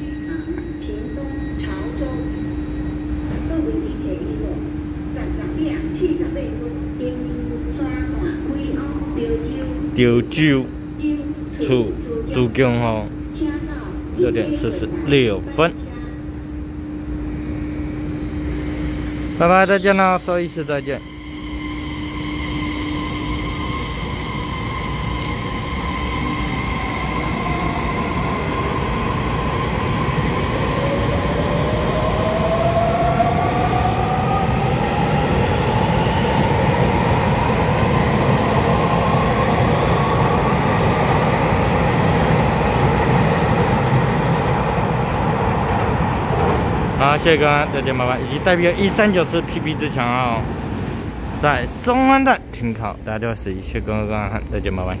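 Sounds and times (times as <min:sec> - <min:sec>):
train wheels rumbling on rails: 0:20.9 - 0:51.4.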